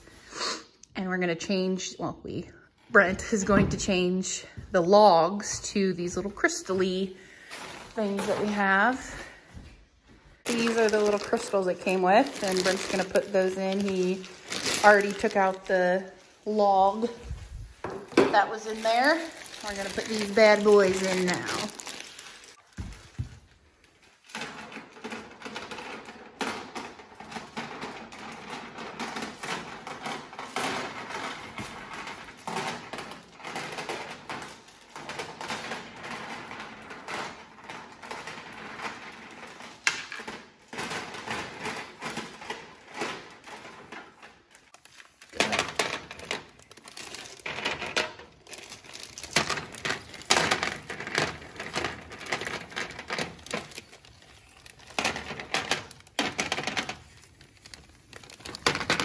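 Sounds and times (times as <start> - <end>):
plastic bag crinkling: 10.4 - 26.0, 41.5 - 59.0.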